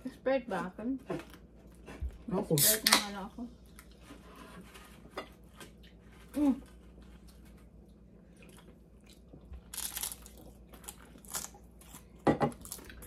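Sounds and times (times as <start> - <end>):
chewing and crunching chips: 5.4 - 13.0.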